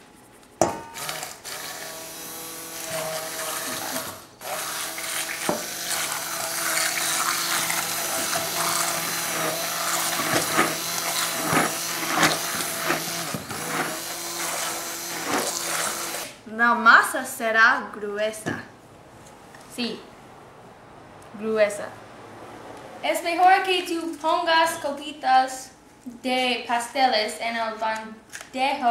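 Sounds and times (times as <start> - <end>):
stick blender running in saucepan: 0.8 - 16.4.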